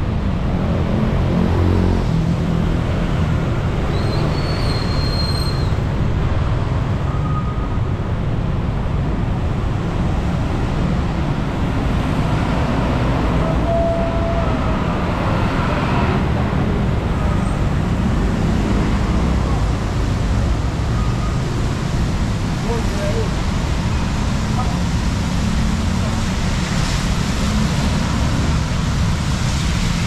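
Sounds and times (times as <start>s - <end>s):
traffic passing on wet road: 0.0s - 30.0s
tyres hissing on wet road: 9.1s - 30.0s.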